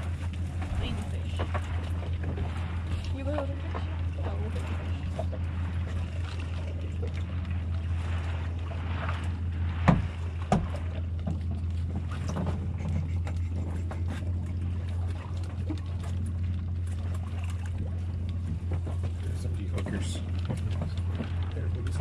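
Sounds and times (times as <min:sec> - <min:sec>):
outboard motor humming: 0:00.0 - 0:22.0.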